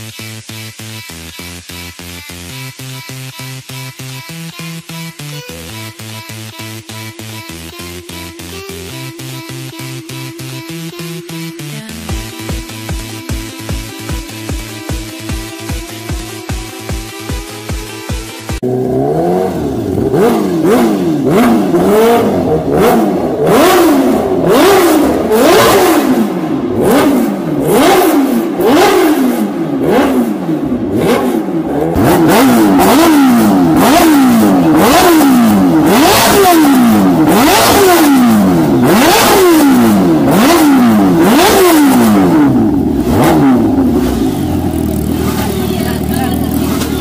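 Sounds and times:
motorcycle engine revving: 2.0 - 47.0
exhaust pops: 39.9 - 47.0.

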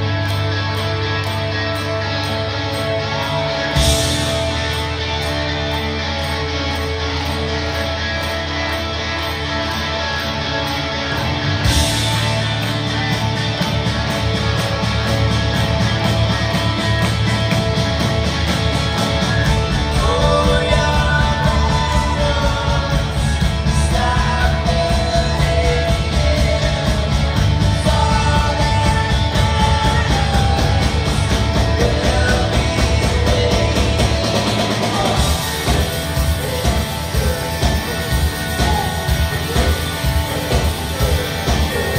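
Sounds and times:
bass guitar: 0.0 - 41.9
drum kit: 0.0 - 41.9
electric guitar: 0.0 - 41.9
live rock band playing: 0.0 - 41.9
person singing: 19.5 - 41.9.

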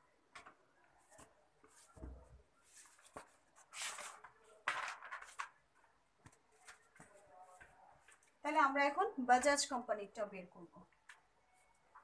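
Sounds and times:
faint rustling handling noises: 0.3 - 8.6.

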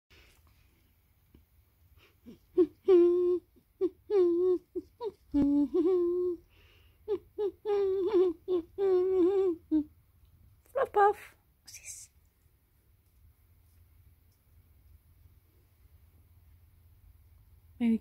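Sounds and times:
woman humming: 2.3 - 6.5, 7.1 - 9.9.

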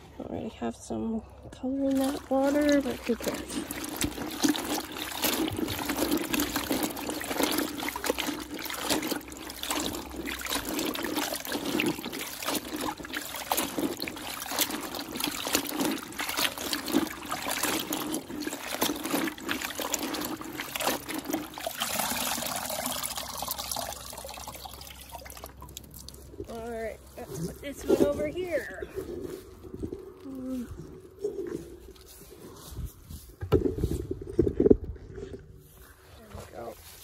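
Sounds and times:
water sloshing in plastic bucket: 1.6 - 37.0
water running off cloth: 1.8 - 28.8
cloth squelching: 1.8 - 33.4.

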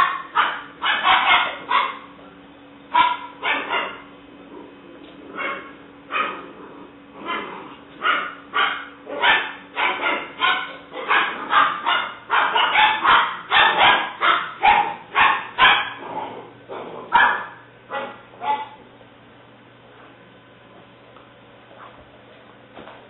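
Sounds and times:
puppy barking: 0.0 - 2.2, 2.9 - 4.1, 5.3 - 6.5, 7.2 - 18.8.

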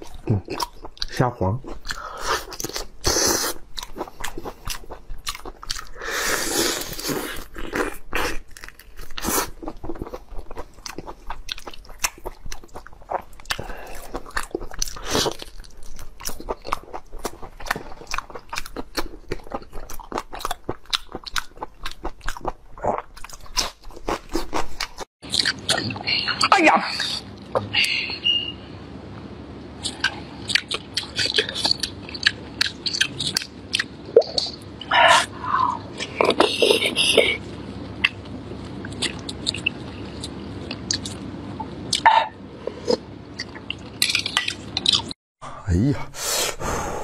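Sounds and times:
crunching and chewing: 0.0 - 26.0, 29.8 - 34.9, 38.0 - 41.3, 41.9 - 45.2.

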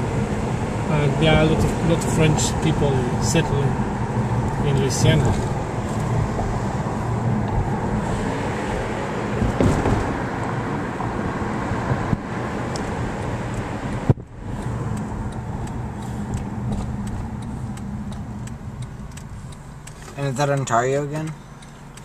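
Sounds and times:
car road and engine noise: 0.0 - 22.0
faint regular ticking: 13.2 - 22.0.

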